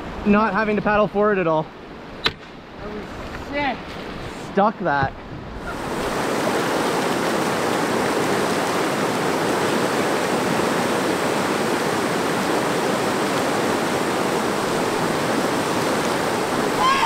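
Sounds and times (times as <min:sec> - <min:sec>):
river rapids roaring: 0:05.5 - 0:17.0.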